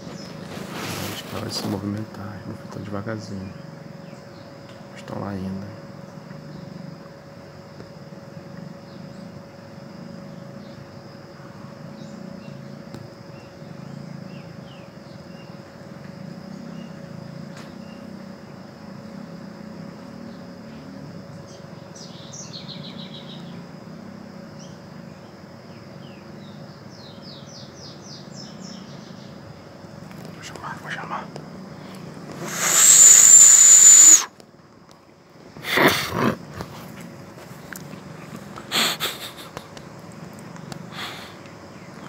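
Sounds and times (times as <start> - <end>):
high insect drone: 0.0 - 42.0
rapid high-pitched chirps: 32.4 - 34.3.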